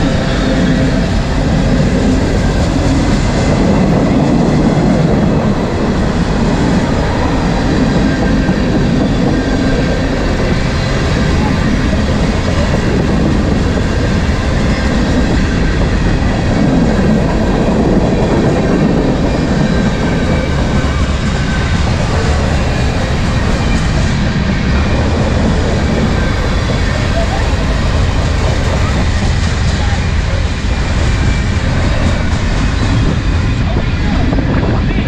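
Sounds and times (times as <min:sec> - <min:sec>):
freight train wheels rumbling on rails: 0:00.0 - 0:35.0.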